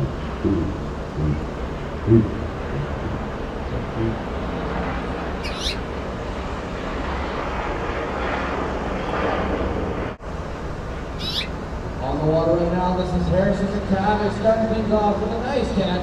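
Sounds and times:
steady rushing noise: 0.0s - 16.0s
small bird chirping: 5.4s - 5.9s, 11.2s - 11.6s.

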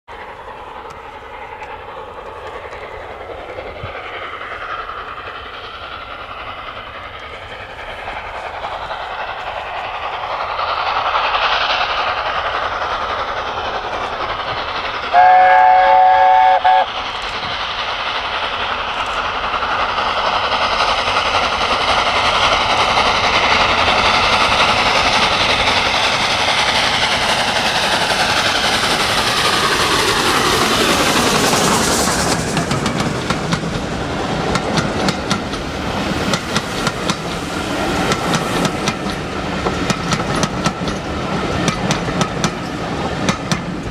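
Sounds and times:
steam locomotive running and exhaust: 0.1s - 43.9s
steam locomotive chime whistle: 15.1s - 17.0s.

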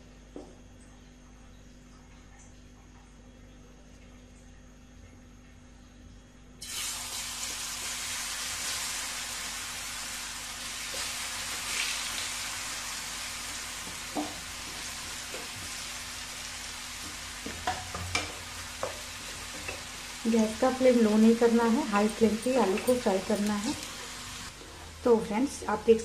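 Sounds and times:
potatoes sizzling in hot oil: 6.6s - 24.6s.

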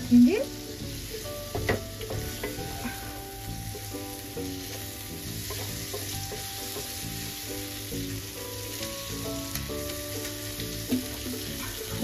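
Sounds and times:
food sizzling in a frying pan: 0.0s - 12.0s
soft background music: 0.0s - 12.0s.

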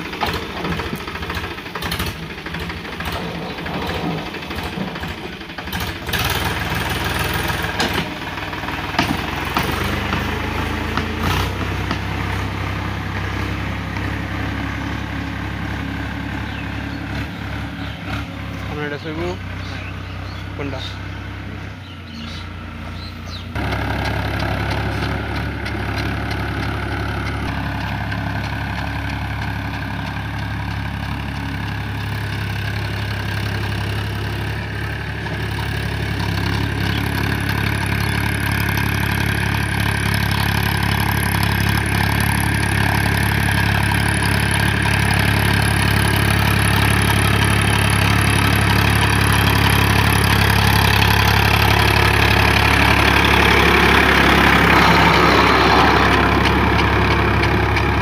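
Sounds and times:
tractor diesel engine running: 0.0s - 58.0s.

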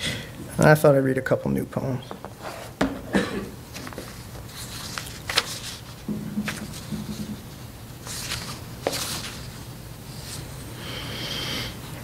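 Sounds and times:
paper rustling: 3.7s - 10.5s.

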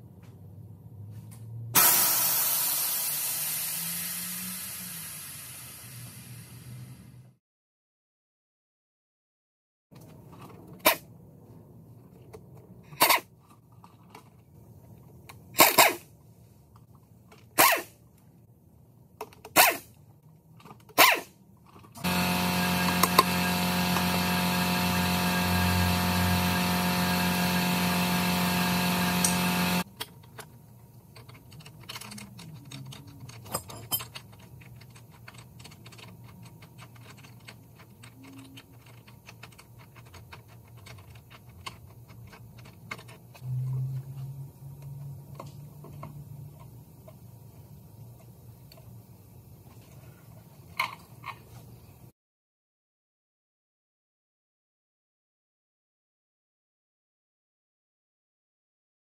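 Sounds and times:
pneumatic impact wrench bursts: 1.8s - 6.9s, 15.6s - 16.0s, 17.6s - 17.9s, 22.0s - 29.8s
steady machine hum: 22.0s - 29.8s
clicks and rattles of parts: 29.2s - 43.4s, 50.7s - 51.6s.

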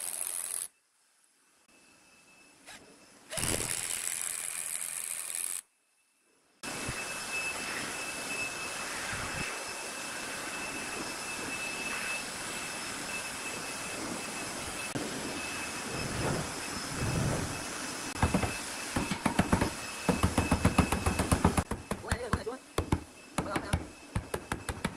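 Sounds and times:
faint high whine: 0.0s - 24.9s
hammer knocking on wood: 18.2s - 24.9s.

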